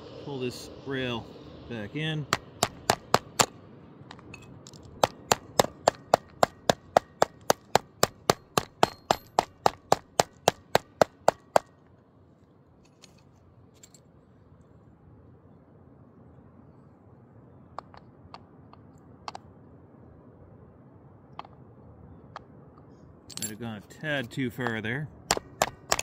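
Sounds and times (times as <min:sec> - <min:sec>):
hammer tapping steel rail: 0:02.3 - 0:11.8, 0:24.6 - 0:26.0.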